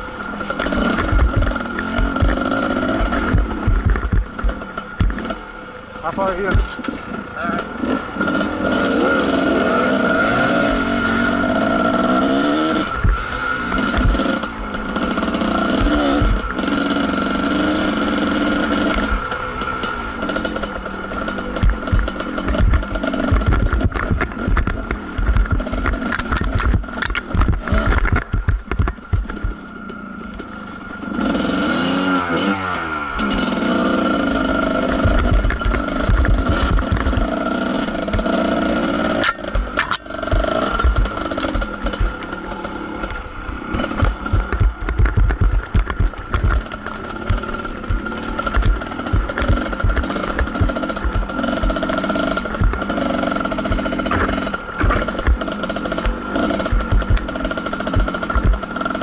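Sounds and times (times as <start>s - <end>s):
low thumps: 0.0s - 5.4s, 21.5s - 29.6s, 34.9s - 37.3s, 39.5s - 58.7s
dirt bike engine revving: 0.0s - 59.0s.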